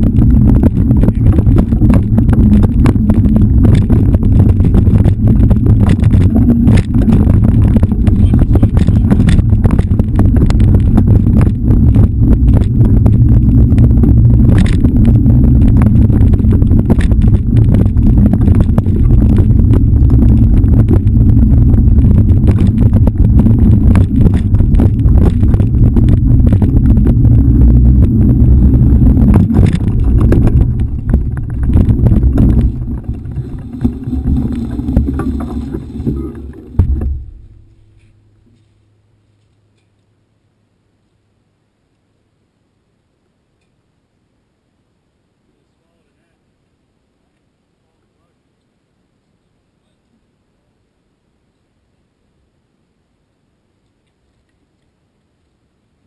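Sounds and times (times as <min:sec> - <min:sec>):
wind buffeting microphone: 0:00.0 - 0:37.8
bike rattles and knocks: 0:00.0 - 0:38.1.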